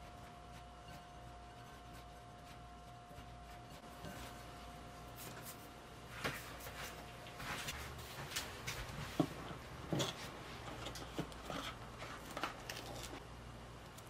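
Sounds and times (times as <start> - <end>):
fingers rubbing butter into flour: 0.0 - 4.2.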